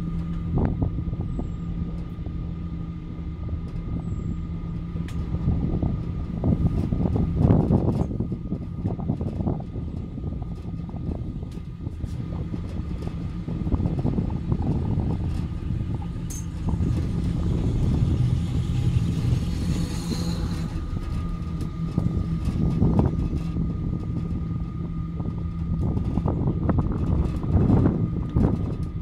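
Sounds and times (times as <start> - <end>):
cable car cabin rumbling: 0.0 - 29.0.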